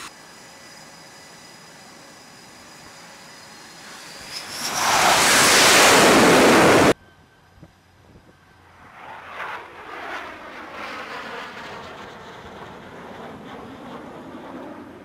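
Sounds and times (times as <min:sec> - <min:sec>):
distant jet engine: 0:00.0 - 0:15.0
loud jet engines: 0:00.0 - 0:15.0
wind on microphone: 0:04.8 - 0:07.0.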